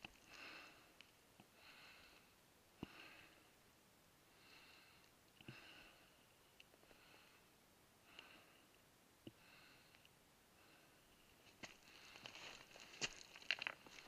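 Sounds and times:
person breathing: 0.2 - 3.6, 4.3 - 12.7
boots knocking stones on scree: 11.6 - 14.0.

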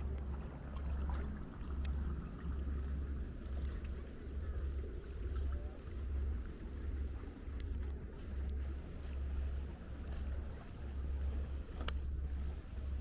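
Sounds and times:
faint splashes: 0.0 - 13.0
small waves lapping: 0.0 - 13.0
wind rumble on microphone: 0.0 - 13.0.

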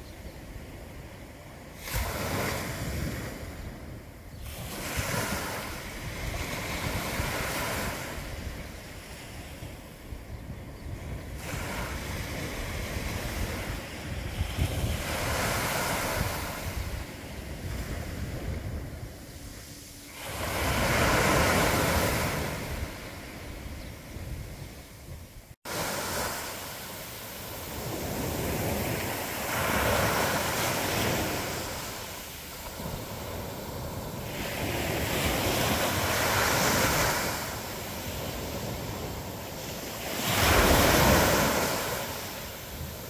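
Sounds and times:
waves washing on sand beach: 0.0 - 10.3, 11.0 - 43.0
wind buffeting microphone: 1.9 - 43.0.

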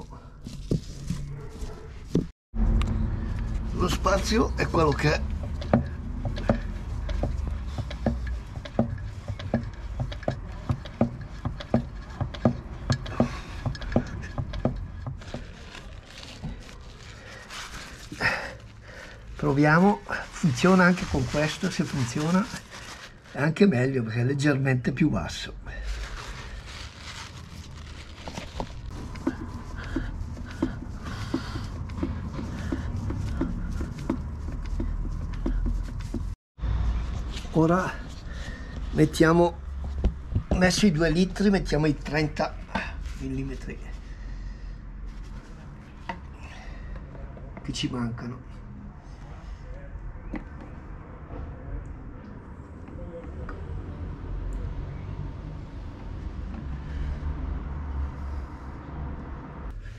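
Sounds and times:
low hum: 2.6 - 4.6
hand pump clicking: 4.9 - 15.4.

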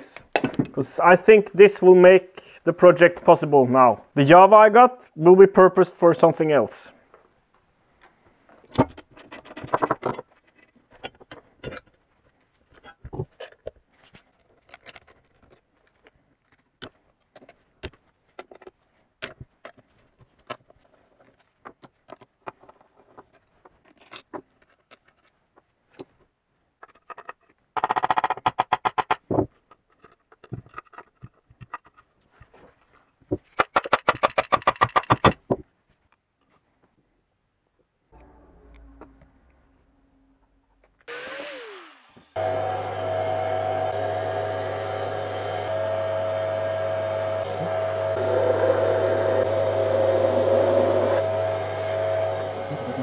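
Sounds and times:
hand tools clicking and knocking: 33.4 - 35.6.

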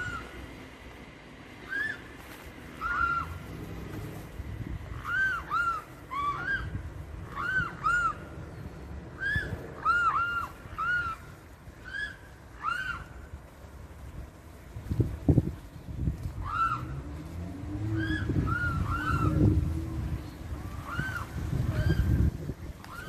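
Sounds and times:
swan cygnets whistling calls: 0.0 - 0.4, 1.6 - 2.1, 2.8 - 3.4, 4.9 - 8.4, 9.1 - 13.2, 16.4 - 16.9, 17.9 - 19.6, 20.6 - 23.0.

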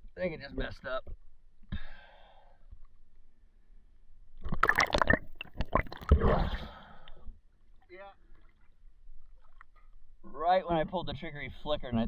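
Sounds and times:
water splashing: 4.4 - 6.8, 8.2 - 10.0.

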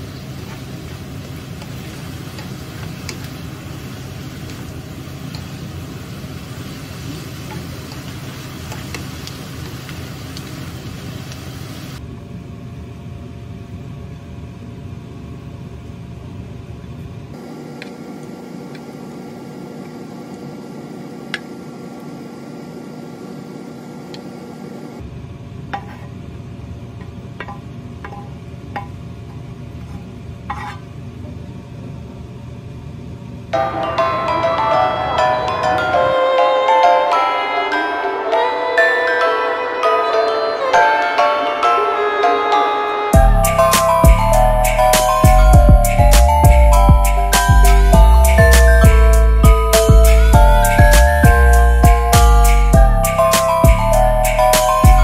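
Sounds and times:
dumplings sizzling in frying pan: 0.0 - 12.0
spatula stirring: 29.7 - 30.9.

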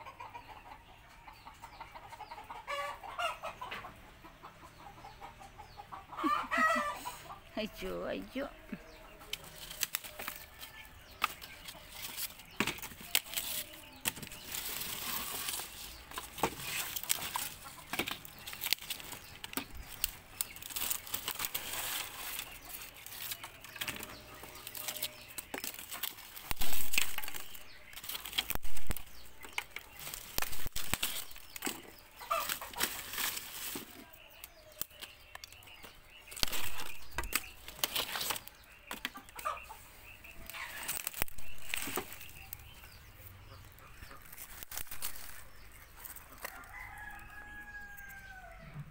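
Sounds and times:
hen clucking: 0.0 - 48.9
dry sticks and leaves rustling: 6.2 - 48.6.

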